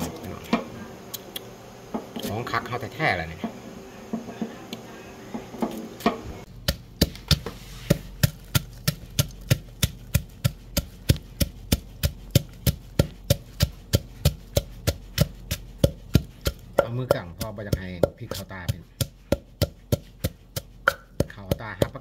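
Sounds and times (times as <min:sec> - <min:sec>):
wooden pestle pounding in mortar: 0:05.6 - 0:22.0.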